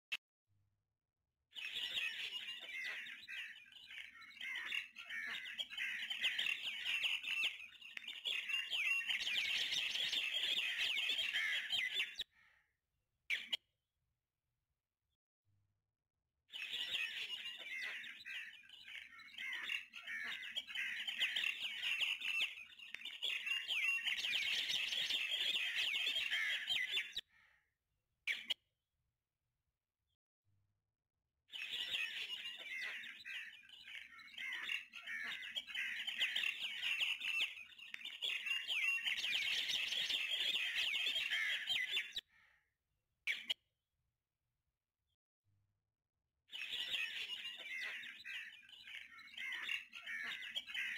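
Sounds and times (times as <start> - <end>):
small birds chirping: 1.5 - 12.6, 13.3 - 13.6, 16.5 - 27.6, 28.2 - 28.6, 31.5 - 42.6, 43.3 - 43.6, 46.5 - 50.9.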